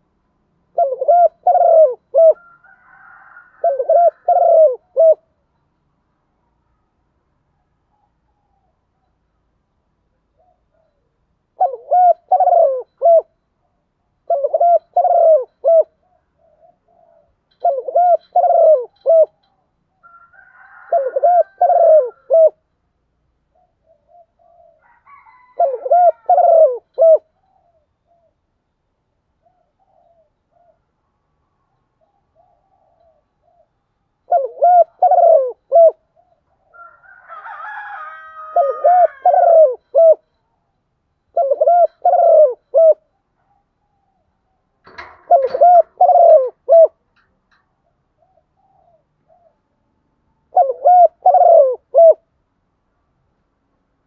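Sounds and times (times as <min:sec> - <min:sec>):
dove cooing: 0:00.6 - 0:05.4, 0:10.2 - 0:22.7, 0:23.5 - 0:28.4, 0:29.4 - 0:31.0, 0:32.0 - 0:40.4, 0:41.3 - 0:49.8, 0:50.4 - 0:52.3.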